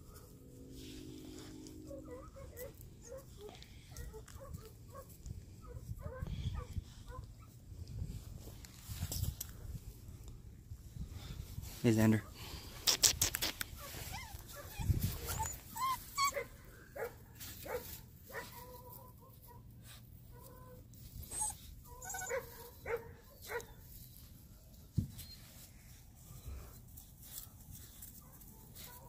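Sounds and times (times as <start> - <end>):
puppies whimpering and yipping: 13.7 - 16.6, 21.1 - 22.9, 25.2 - 25.7.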